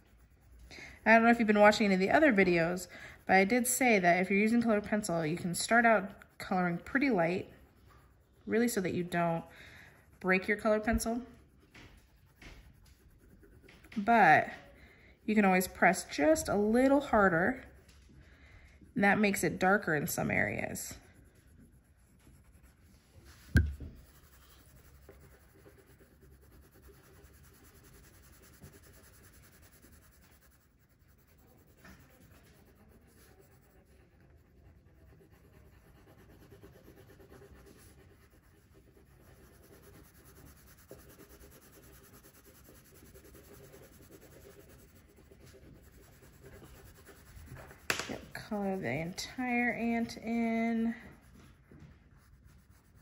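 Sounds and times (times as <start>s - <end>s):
pencil scratching on paper: 0.0s - 18.2s, 18.8s - 53.0s
sharp thump: 23.5s - 24.0s.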